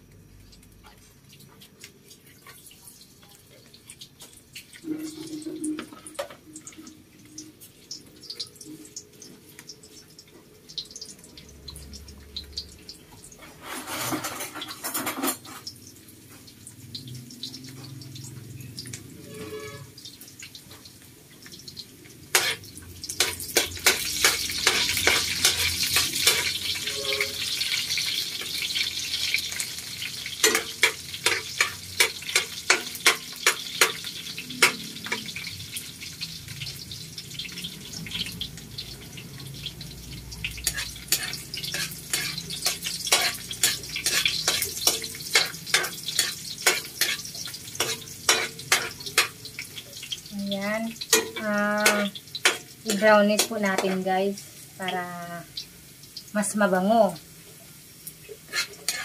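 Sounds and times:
garlic sizzling in hot oil: 0.0 - 59.0
spatula scraping a wok: 13.3 - 15.8, 19.2 - 20.0, 22.3 - 35.5, 40.5 - 49.7, 58.3 - 59.0.

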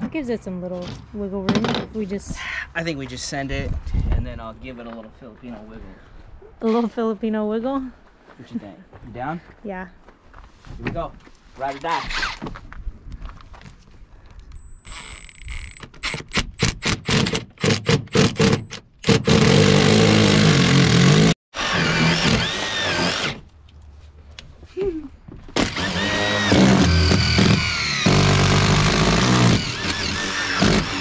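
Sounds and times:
cordless drill boring: 17.0 - 23.4, 25.6 - 31.0.

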